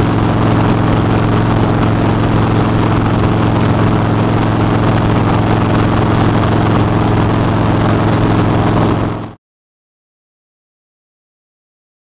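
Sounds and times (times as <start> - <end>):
low engine hum: 0.0 - 9.4
wind and road noise: 0.0 - 9.4.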